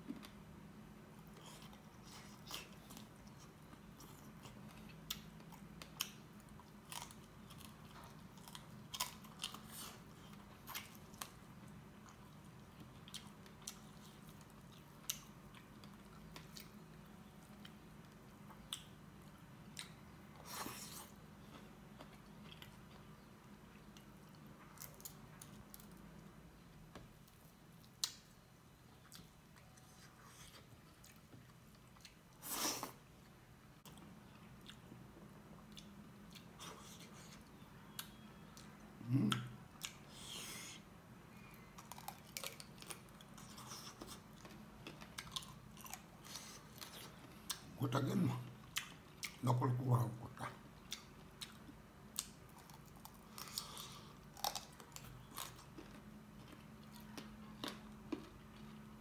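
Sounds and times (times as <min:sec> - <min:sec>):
faint low hum: 0:00.0 - 0:59.0
man chewing and biting: 0:41.8 - 0:47.7, 0:52.2 - 0:58.8.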